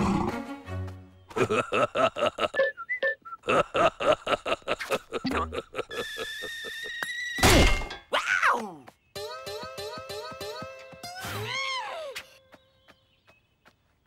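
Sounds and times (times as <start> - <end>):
cartoon music staccato notes: 9.2 - 11.2.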